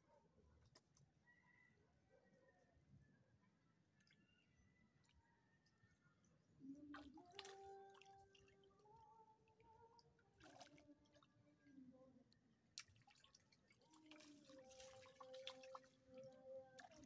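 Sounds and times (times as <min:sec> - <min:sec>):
water splashing and dripping: 0:06.9 - 0:11.3, 0:12.7 - 0:17.0.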